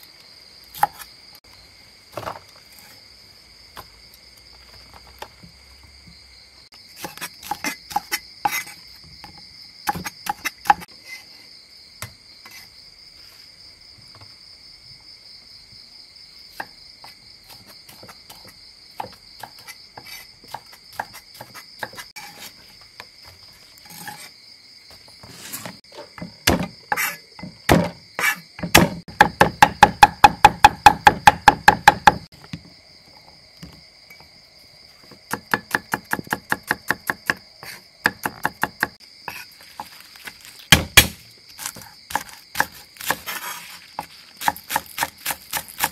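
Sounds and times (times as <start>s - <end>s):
crickets chirping: 0.0s - 45.9s
cleaver chopping on wooden board: 9.9s - 10.9s, 26.2s - 32.3s, 35.3s - 39.0s, 40.7s - 45.9s.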